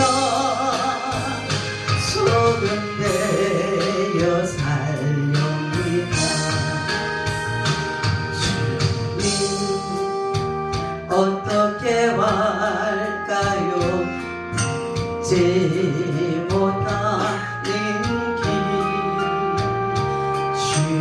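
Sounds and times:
woman singing gospel song: 0:00.0 - 0:07.0, 0:08.4 - 0:10.1, 0:11.1 - 0:14.2, 0:15.2 - 0:19.6, 0:20.6 - 0:21.0
instrumental accompaniment with drums: 0:00.0 - 0:12.6, 0:13.4 - 0:21.0.

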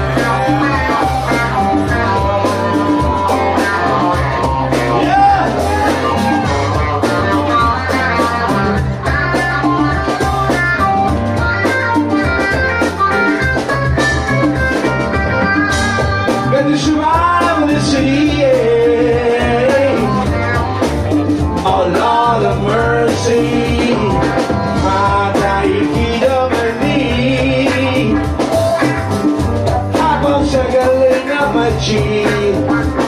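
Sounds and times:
drum kit: 0:00.0 - 0:33.0
electric guitar: 0:00.0 - 0:33.0
man singing into a microphone: 0:16.4 - 0:20.4, 0:21.6 - 0:28.5, 0:29.9 - 0:33.0.

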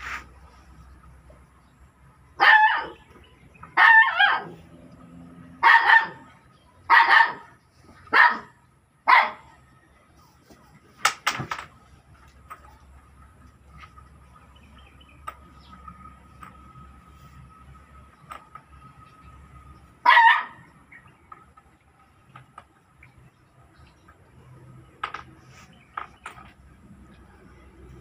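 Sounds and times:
dog barking: 0:02.4 - 0:03.0, 0:03.8 - 0:04.6, 0:05.6 - 0:06.3, 0:06.9 - 0:09.6, 0:20.0 - 0:20.6.

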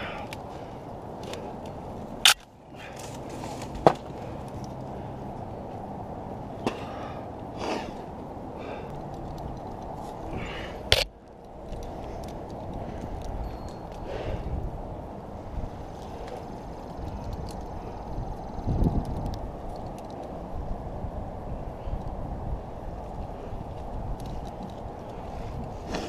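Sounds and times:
rustling of needles and twigs: 0:00.0 - 0:06.6, 0:07.6 - 0:20.7, 0:22.8 - 0:26.0
steady low background noise: 0:00.0 - 0:26.0
sharp branch cracks: 0:02.2 - 0:04.8.

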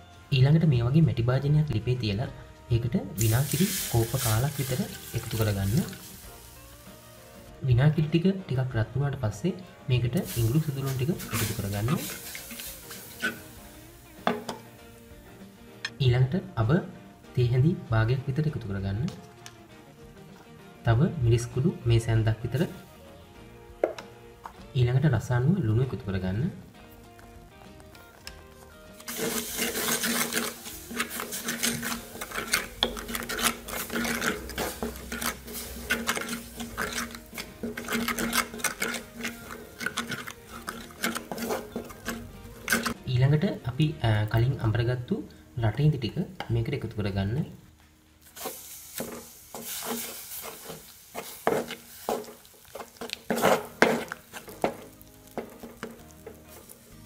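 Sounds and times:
light sizzle: 0:03.2 - 0:07.5, 0:10.2 - 0:15.9, 0:26.8 - 0:43.0, 0:44.3 - 0:57.0
spoon scraping clay pot: 0:10.2 - 0:13.6, 0:28.0 - 0:43.0, 0:48.4 - 0:56.9.

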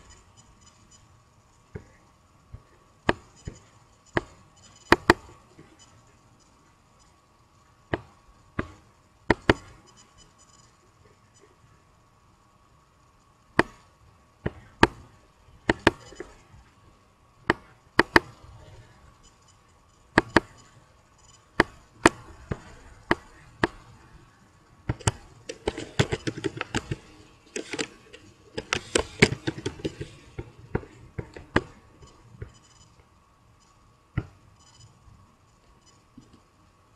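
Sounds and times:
keyboard key presses: 0:24.9 - 0:31.8
computer mouse clicking: 0:24.9 - 0:33.1.

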